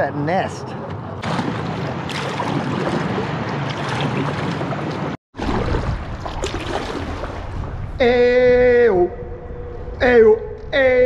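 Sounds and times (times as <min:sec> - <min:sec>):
rush of wind and water: 0:01.1 - 0:10.8
outboard motorboat passing: 0:01.2 - 0:05.7.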